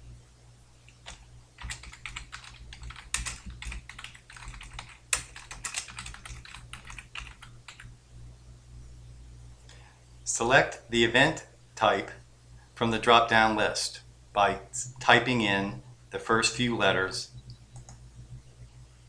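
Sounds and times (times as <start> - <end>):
steady low hum: 0.0 - 19.0
keyboard keystroke clicks: 17.5 - 18.0.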